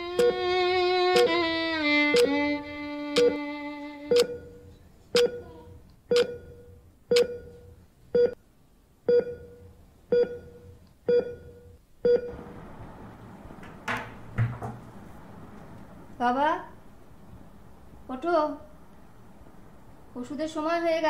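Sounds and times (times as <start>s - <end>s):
wall clock ticking: 0.0s - 0.5s, 1.1s - 1.4s, 2.0s - 2.4s, 3.1s - 3.5s, 4.1s - 4.5s, 5.2s - 5.5s, 6.1s - 7.5s
knock: 13.8s - 14.8s.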